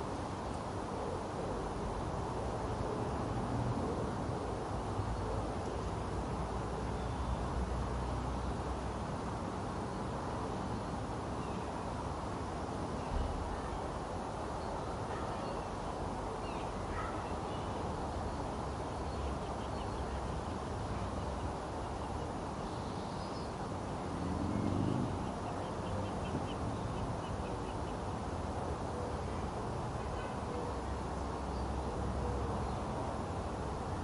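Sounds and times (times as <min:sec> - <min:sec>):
low background noise: 0:00.0 - 0:34.0
small birds chirping: 0:14.6 - 0:28.2.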